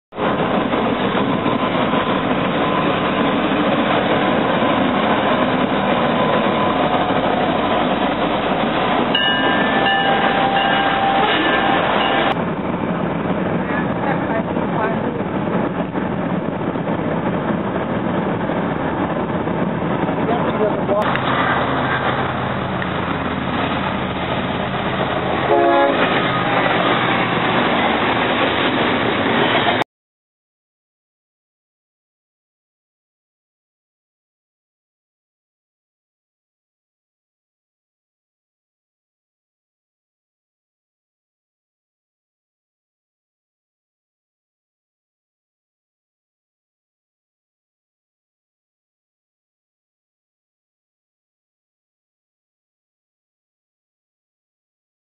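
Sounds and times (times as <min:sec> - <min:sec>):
freight train rolling past: 0:00.2 - 0:29.8
wheels on rail: 0:00.2 - 0:29.8
train horn blast: 0:09.7 - 0:12.3, 0:25.4 - 0:26.5.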